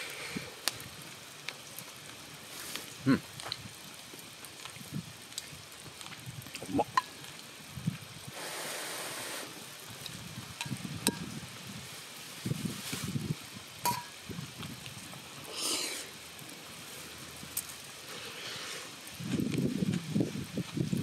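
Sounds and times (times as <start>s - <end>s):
pot sizzling and crackling: 0.0s - 21.0s
short hiss: 8.3s - 9.6s
chopsticks clinking on metal cup: 13.9s - 14.1s.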